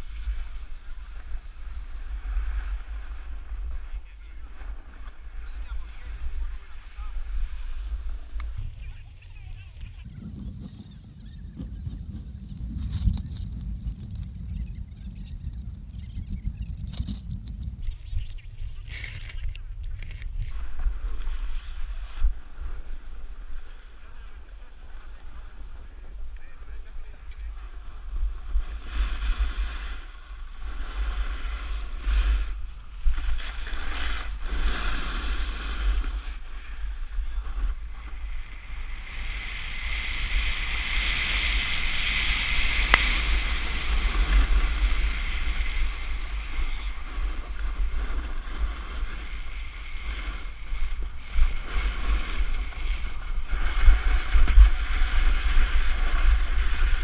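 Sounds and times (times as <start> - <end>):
wind buffeting microphone: 5.4 - 20.7
snowboard scraping over snow: 27.7 - 57.0.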